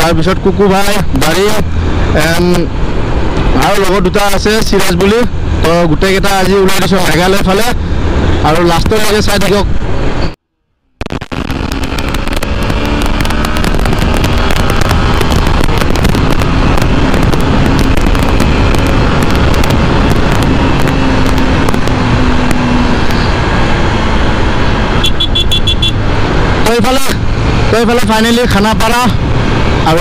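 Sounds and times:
wind rushing over microphone: 0.0s - 10.4s, 11.0s - 30.0s
motorcycle engine humming: 9.6s - 30.0s.

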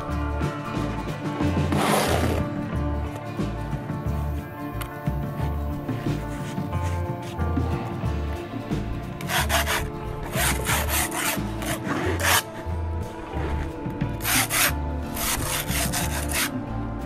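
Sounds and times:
background music with steady beat: 0.0s - 17.0s
tool scraping: 9.2s - 12.7s, 14.2s - 16.6s.

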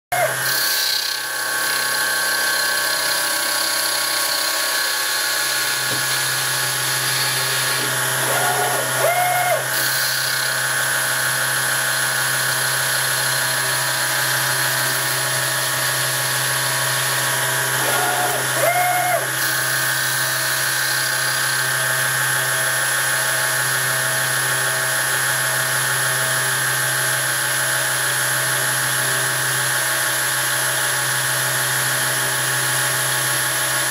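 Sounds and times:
lathe machine whine: 0.1s - 27.1s.

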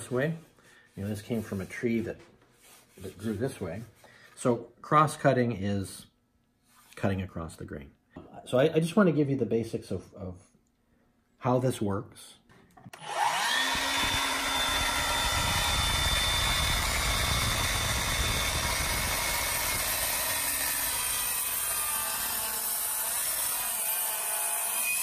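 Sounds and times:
miter saw motor whine: 13.0s - 23.5s
saw blade cutting wood: 13.0s - 25.0s.

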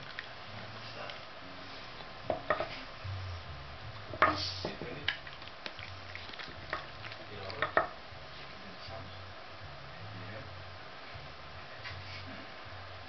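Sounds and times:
wooden blocks knocking on board: 2.3s - 2.7s, 7.6s - 8.0s.

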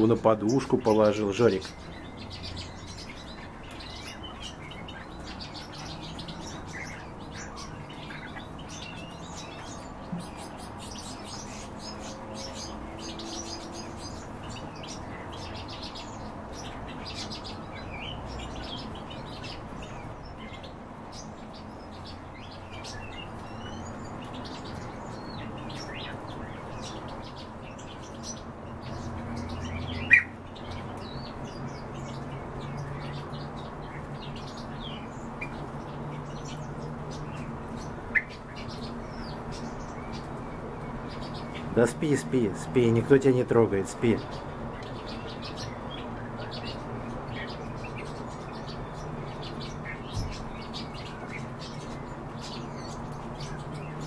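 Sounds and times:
pet birds chirping: 0.0s - 54.0s.

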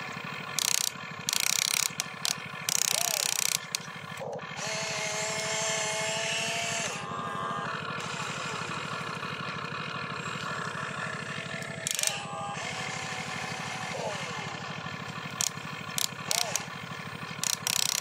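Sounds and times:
electric motors whining: 0.0s - 18.0s
low engine-like drone: 0.0s - 18.0s.

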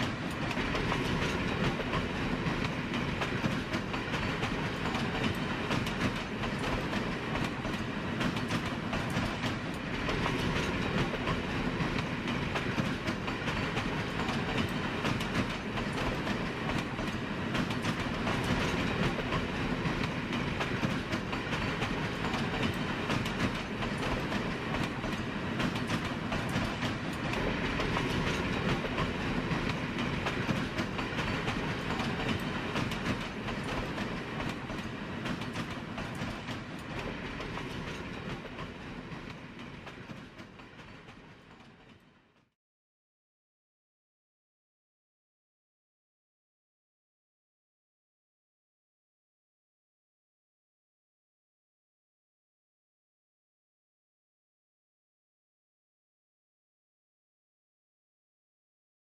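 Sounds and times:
train wheels rumbling on rails: 0.0s - 42.5s.

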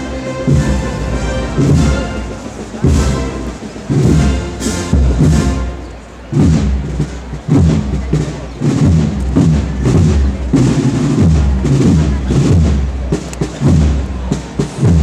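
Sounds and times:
bass drum: 0.0s - 15.0s
snare drums: 0.0s - 15.0s.

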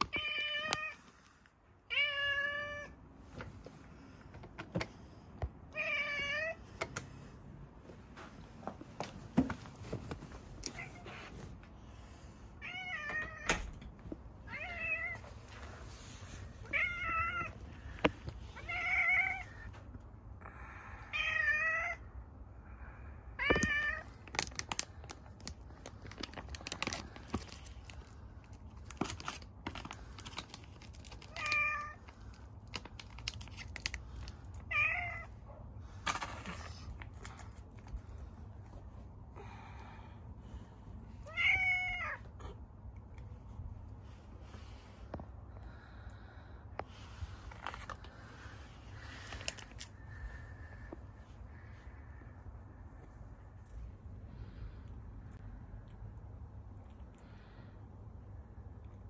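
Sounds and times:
cat meowing: 1.9s - 3.0s, 5.7s - 6.6s, 18.6s - 19.7s, 34.7s - 35.4s, 41.2s - 42.4s.

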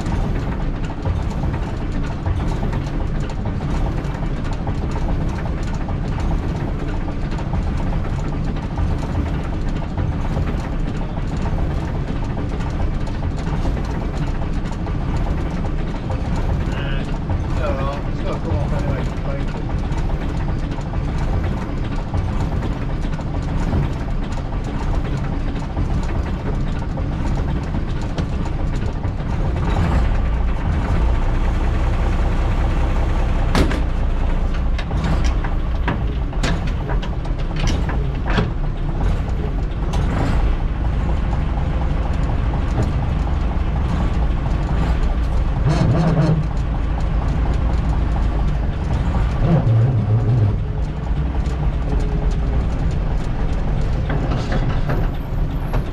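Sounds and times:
diesel bus engine running: 0.0s - 55.9s
sharp clicks and knocks: 0.0s - 55.9s.

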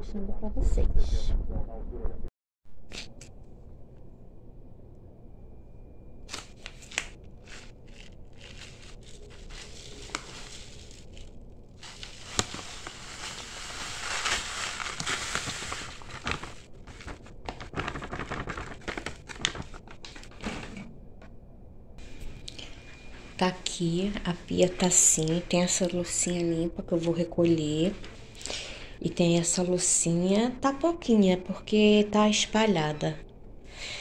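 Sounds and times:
plastic bag crinkling: 6.3s - 20.4s.

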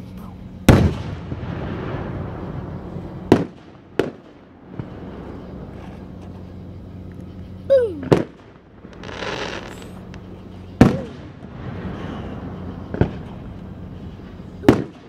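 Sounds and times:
firework crackling: 0.6s - 15.0s
firework bangs: 0.7s - 15.0s
firework whistle: 0.7s - 15.0s.

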